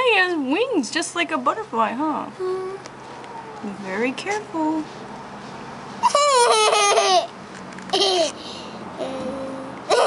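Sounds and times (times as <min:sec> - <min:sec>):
girl laughing: 0:06.0 - 0:07.3, 0:08.0 - 0:08.4.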